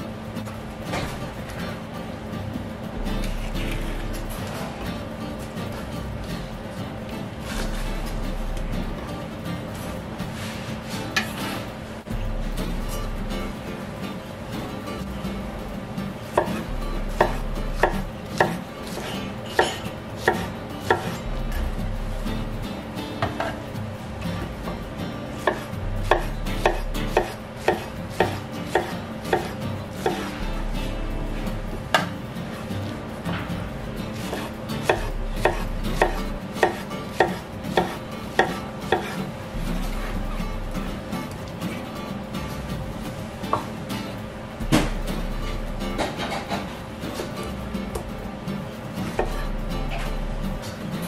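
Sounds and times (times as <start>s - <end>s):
knife slicing pineapple: 25.4s - 30.3s, 34.2s - 40.2s.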